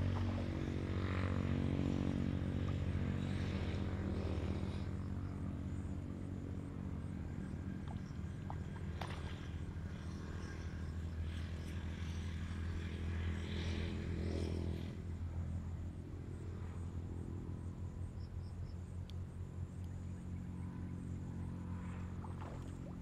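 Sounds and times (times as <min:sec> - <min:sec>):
low engine drone: 0:00.0 - 0:23.0.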